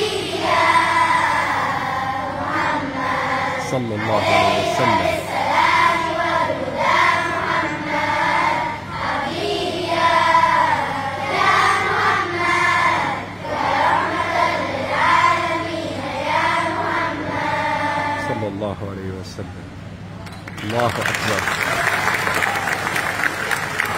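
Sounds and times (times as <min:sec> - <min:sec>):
children's choir singing: 0:00.0 - 0:18.5.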